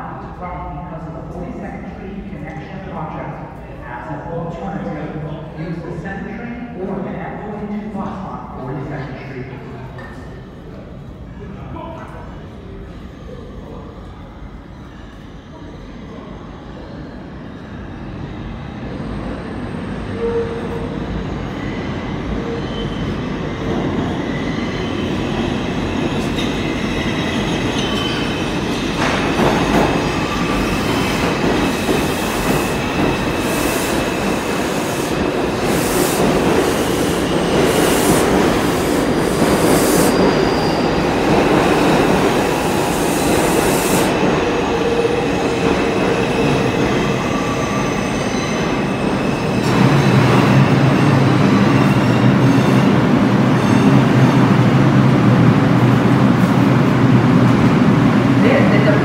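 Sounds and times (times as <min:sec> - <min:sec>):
steel wheels rumbling on rail: 0:17.8 - 0:59.0
train wheels squealing: 0:19.5 - 0:31.1, 0:39.6 - 0:41.3, 0:46.1 - 0:53.9.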